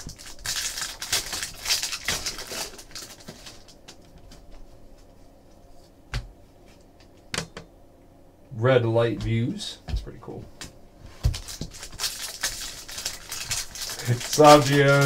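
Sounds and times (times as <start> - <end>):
trading cards rustling and flicking: 0.0 - 5.1, 11.2 - 15.0.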